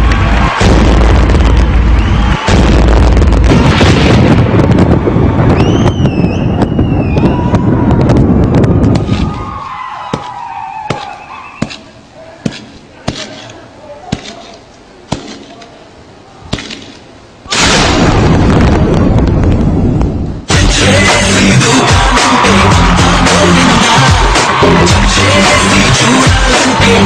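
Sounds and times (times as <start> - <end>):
studio audience cheering: 0.0 - 3.2, 4.9 - 11.7, 20.5 - 27.0
piercing whistles: 5.6 - 7.5, 10.2 - 11.8
scattered claps: 21.1 - 27.0.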